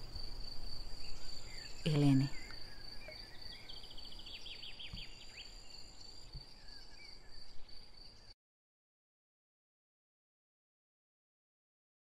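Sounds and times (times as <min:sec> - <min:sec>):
high-pitched insect trill: 0:00.0 - 0:08.3
faint bird calls: 0:00.8 - 0:08.4.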